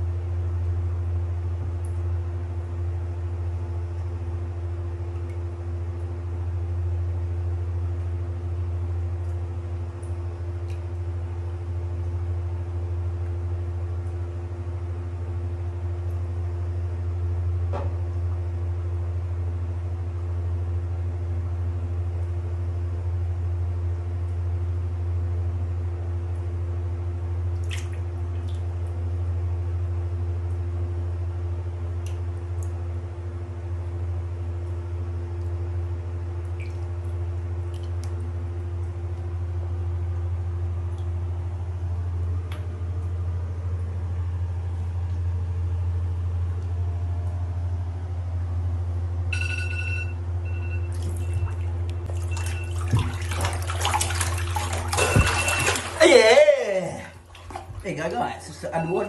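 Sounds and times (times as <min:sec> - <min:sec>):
steady low hum: 0:00.0 - 0:59.0
water dripping into bathtub: 0:05.1 - 0:05.5, 0:10.0 - 0:11.0, 0:27.4 - 0:29.0, 0:32.0 - 0:32.8, 0:36.4 - 0:39.3, 0:40.9 - 0:41.2, 0:50.8 - 0:56.3, 0:57.2 - 0:57.9.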